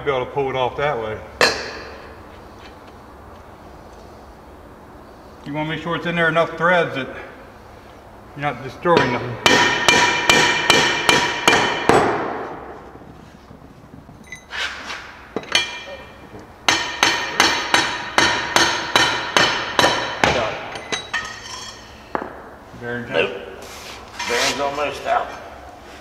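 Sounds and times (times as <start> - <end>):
hammer striking steel: 1.4 - 2.1, 8.9 - 12.7, 16.7 - 22.4.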